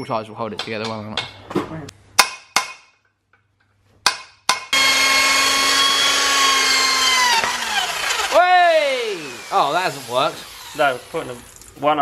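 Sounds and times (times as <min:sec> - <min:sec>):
power tool whining: 0:04.7 - 0:11.8.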